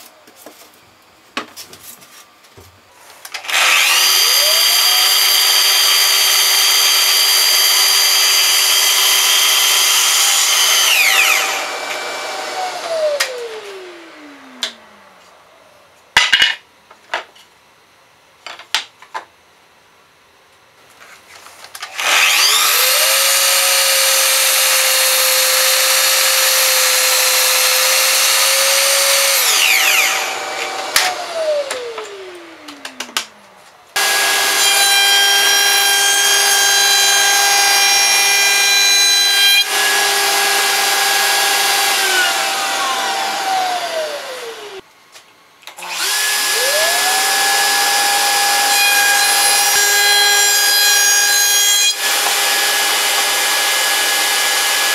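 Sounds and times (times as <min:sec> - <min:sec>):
electric motor whine: 0:03.4 - 0:15.7, 0:21.9 - 0:44.8, 0:45.8 - 0:50.4.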